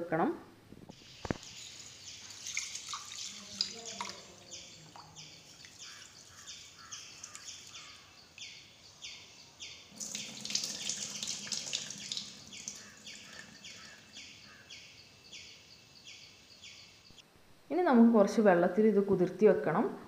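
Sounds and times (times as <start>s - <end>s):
bird chirping: 0.9s - 17.2s
tap water splashing into bowl: 1.2s - 6.1s, 10.0s - 13.8s.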